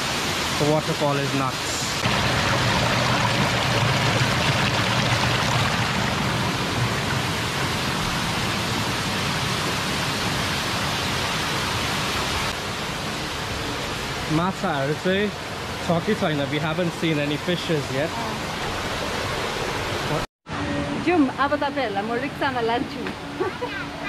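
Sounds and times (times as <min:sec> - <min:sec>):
rush of falling water: 0:00.0 - 0:20.3.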